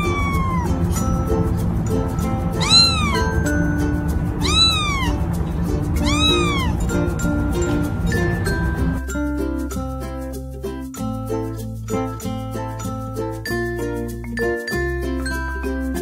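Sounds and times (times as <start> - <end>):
kitten meowing: 0.0 - 0.8, 2.5 - 3.6, 4.3 - 5.3, 6.0 - 6.9.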